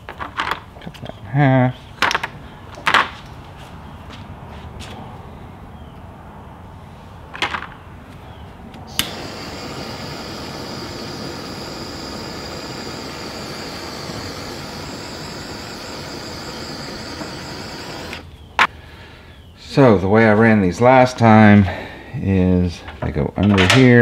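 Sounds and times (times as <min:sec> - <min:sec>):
heat gun blowing with whine: 0:08.8 - 0:18.5
heat gun switch click: 0:08.9 - 0:10.9.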